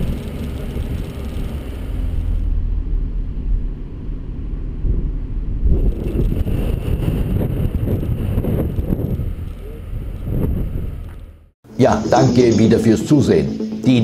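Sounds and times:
car engine and road rumble: 0.0s - 11.6s
wind buffeting microphone: 4.6s - 11.4s.

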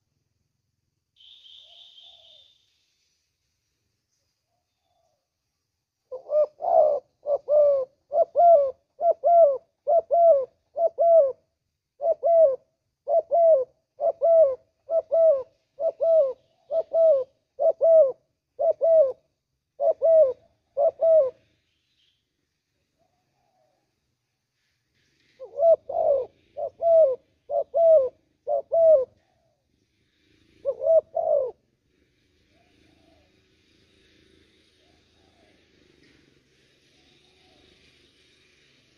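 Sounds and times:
dove cooing: 6.1s - 21.4s, 25.4s - 29.6s, 30.6s - 31.7s, 32.5s - 33.3s.

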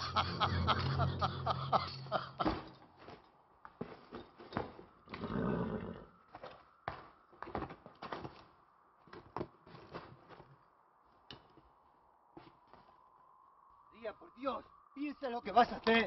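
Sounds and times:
horse snorting: 5.1s - 6.1s.

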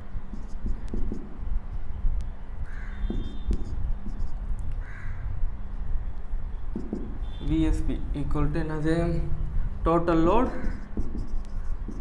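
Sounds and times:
crow cawing: 2.6s - 3.4s, 4.8s - 5.3s, 10.5s - 10.9s
steady low rumble: 3.4s - 12.0s.

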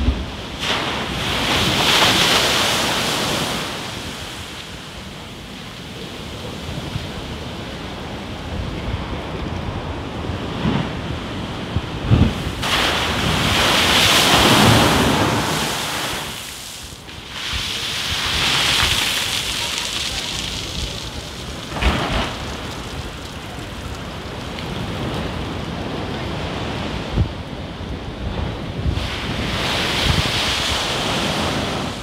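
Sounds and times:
dull thuds of waves: 0.0s - 4.6s, 8.5s - 32.0s
waves crashing against wall: 0.0s - 5.1s, 8.6s - 27.4s, 28.0s - 32.0s
rushing water swells: 0.0s - 8.6s, 11.2s - 27.1s
wind buffeting microphone: 0.0s - 32.0s.

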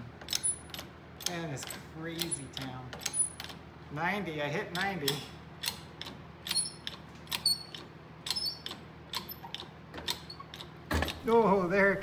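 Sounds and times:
wire under strain clicking: 4.7s - 11.2s
high metallic squeak: 7.4s - 8.7s.

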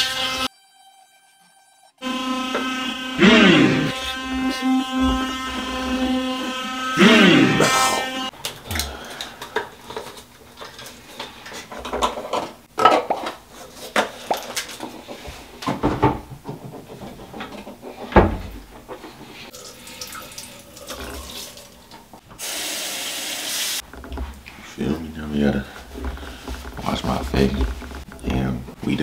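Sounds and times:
faucet running: 19.5s - 23.8s.

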